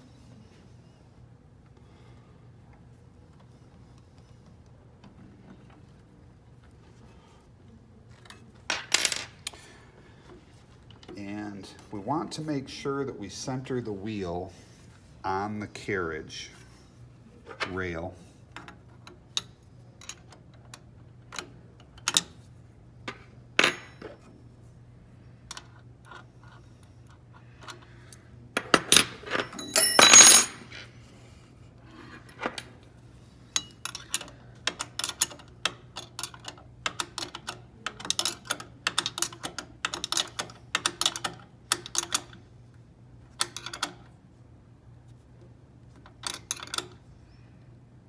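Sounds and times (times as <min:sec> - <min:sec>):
metal parts rattling: 0:29.1 - 0:30.7
wrench and nut clinking on bolt: 0:29.3 - 0:30.6, 0:33.6 - 0:42.4, 0:46.2 - 0:47.0.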